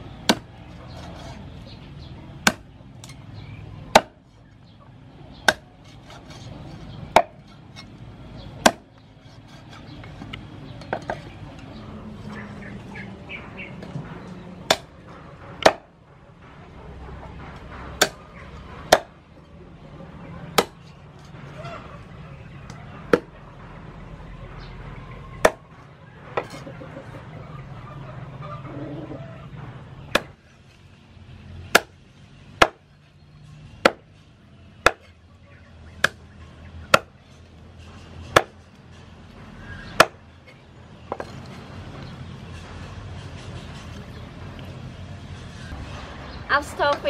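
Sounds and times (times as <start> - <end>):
cleaver chopping on wooden board: 0.2 - 0.5, 2.4 - 2.7, 3.9 - 4.2, 5.4 - 6.2, 8.6 - 8.9, 14.6 - 14.9, 15.6 - 15.9, 20.6 - 20.8, 30.1 - 30.4, 31.7 - 31.9, 32.6 - 32.8, 33.8 - 34.1, 34.8 - 35.1, 36.0 - 36.2, 36.9 - 37.2, 38.3 - 38.6, 39.9 - 40.2.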